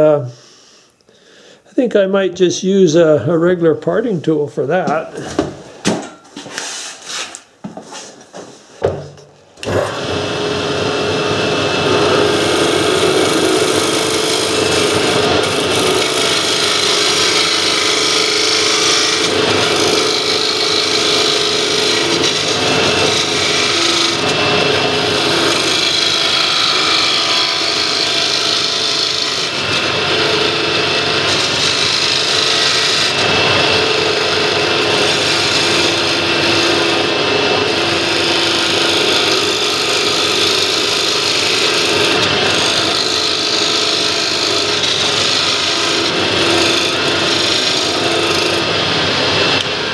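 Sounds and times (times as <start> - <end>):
knocks: 8.8 - 9.3
lathe humming: 9.6 - 49.9
lathe tool scraping wood: 9.6 - 49.9.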